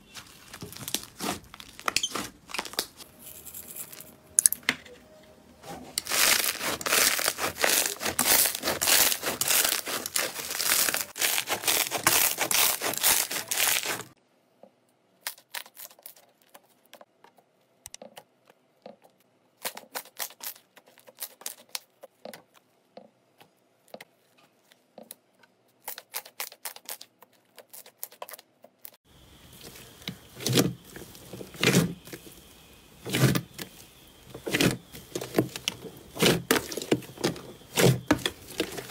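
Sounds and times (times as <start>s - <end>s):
slime squelching: 0.0s - 3.0s, 6.0s - 14.2s, 29.4s - 38.9s
foam bead slime crackling: 0.0s - 4.0s, 6.0s - 14.2s.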